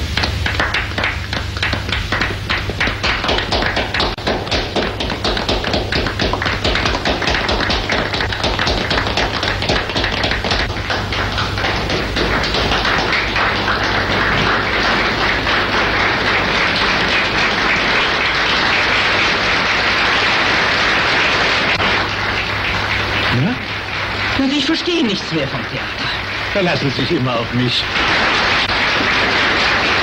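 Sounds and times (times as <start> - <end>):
audience applauding: 0.0 - 30.0.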